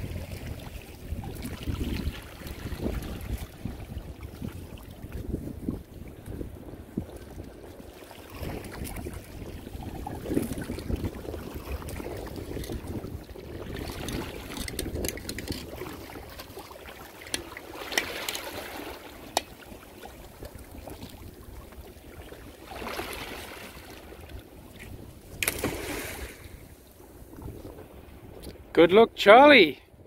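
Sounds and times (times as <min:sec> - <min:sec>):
water lapping against rock: 0:00.0 - 0:28.6
wind buffeting microphone: 0:00.0 - 0:28.8
rope clicks and knocks: 0:14.0 - 0:16.0.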